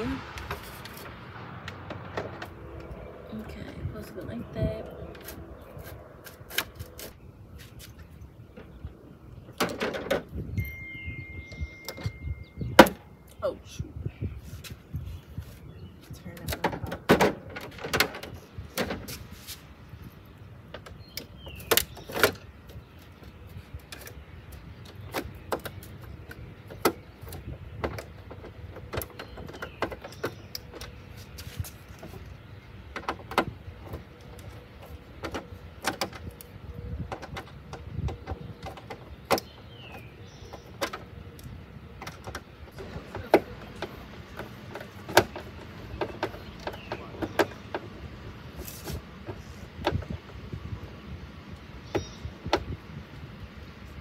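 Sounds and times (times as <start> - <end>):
low background rumble: 0.0 - 7.5
license plate clicking and tapping: 20.7 - 48.0.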